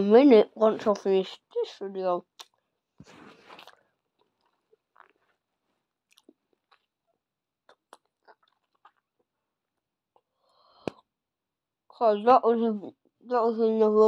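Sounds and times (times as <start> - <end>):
bubble gum chewing: 2.3 - 11.1.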